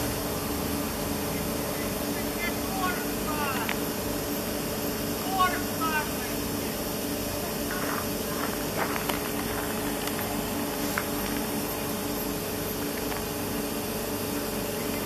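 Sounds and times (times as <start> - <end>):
train mechanical hum and hiss: 0.0 - 15.0.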